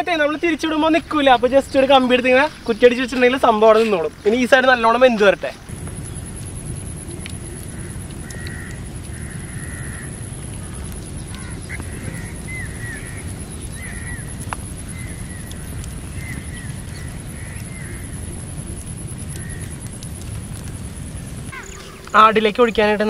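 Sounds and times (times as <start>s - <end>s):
birds chirping: 0.0s - 23.0s
insect trill: 0.0s - 23.0s
low rumble: 5.6s - 22.6s.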